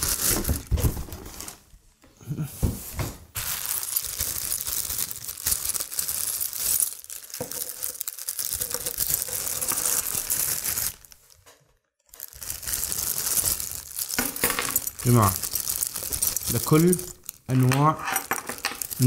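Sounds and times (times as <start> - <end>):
plastic bag crinkling: 0.0 - 1.6, 3.4 - 19.0
metal hardware clinking: 16.6 - 19.0.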